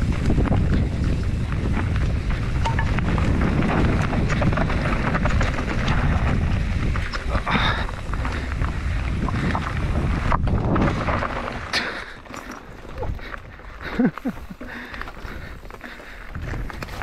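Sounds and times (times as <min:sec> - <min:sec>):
wind rushing over microphone: 0:00.0 - 0:11.8, 0:15.2 - 0:17.0
bike tyres clicking and rattling: 0:00.0 - 0:17.0.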